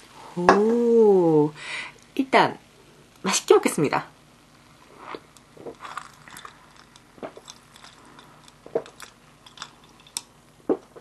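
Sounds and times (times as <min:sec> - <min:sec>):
person gulping: 0:04.9 - 0:09.2, 0:10.7 - 0:11.0.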